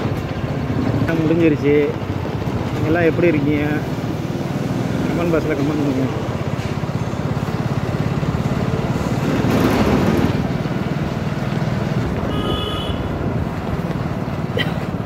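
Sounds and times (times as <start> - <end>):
short high-pitched horn tone: 12.3 - 13.1.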